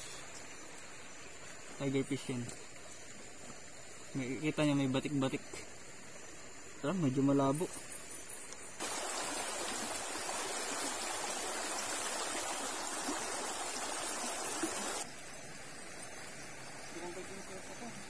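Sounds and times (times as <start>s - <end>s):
river water rushing over rocks: 8.8s - 15.0s.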